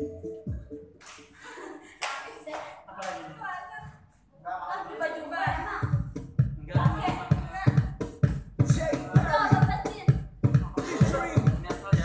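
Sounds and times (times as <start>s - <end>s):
dance music: 0.0s - 1.4s, 5.4s - 12.0s.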